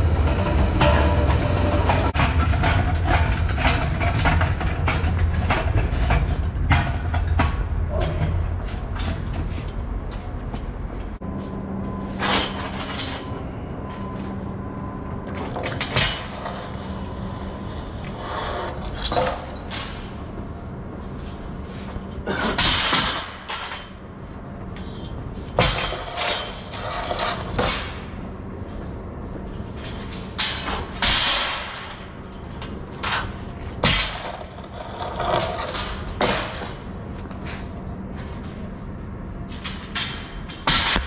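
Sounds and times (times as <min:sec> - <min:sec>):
steel scaffold parts clanking: 0:00.0 - 0:10.3, 0:12.0 - 0:14.4, 0:15.2 - 0:20.4, 0:24.8 - 0:28.8, 0:29.5 - 0:38.6
steady low hum: 0:00.0 - 0:41.0.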